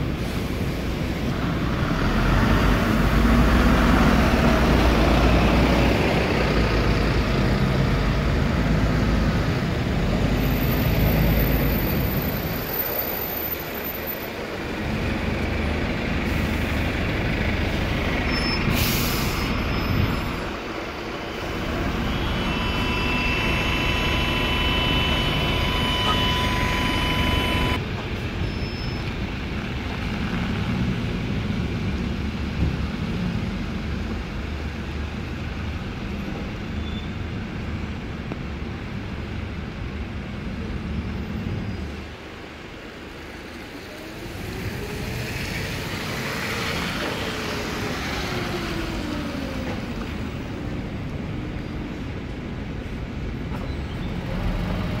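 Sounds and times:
tyres hissing on wet road: 0:00.0 - 0:51.1
bus engine rumble: 0:00.0 - 0:55.0
rising and falling whine: 0:21.5 - 0:27.8.

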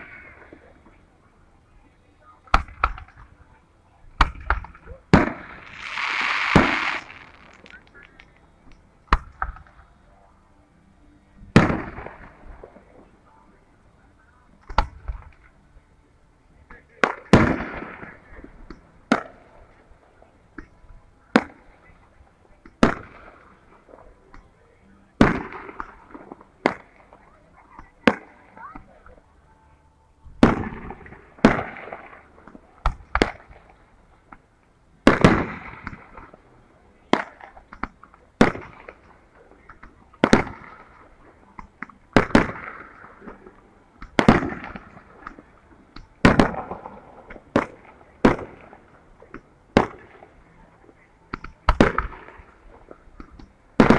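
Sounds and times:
firework shells bursting: 0:05.2 - 0:08.3.

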